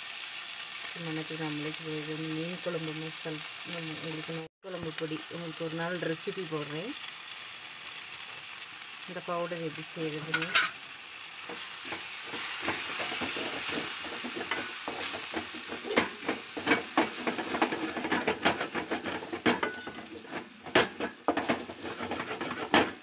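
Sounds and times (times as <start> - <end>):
vegetables sizzling in oil: 0.0 - 23.0
wooden spatula scraping a pot: 11.4 - 23.0.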